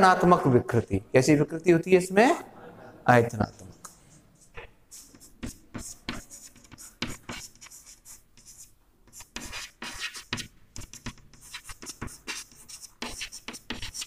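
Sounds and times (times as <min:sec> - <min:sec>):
chalk scratching on chalkboard: 0:03.6 - 0:14.0.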